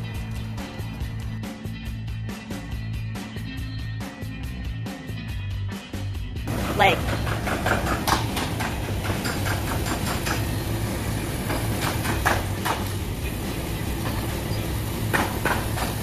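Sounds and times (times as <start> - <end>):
steady low hum: 6.5 - 15.9
rattling and metallic knocks: 6.5 - 16.0.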